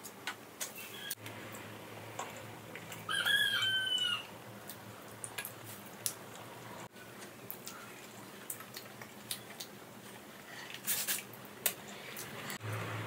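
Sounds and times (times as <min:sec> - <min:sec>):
rooster crowing: 0:03.0 - 0:04.4.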